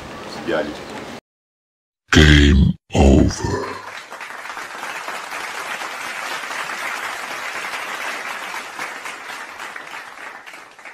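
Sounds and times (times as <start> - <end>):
crowd applauding: 3.6 - 10.9.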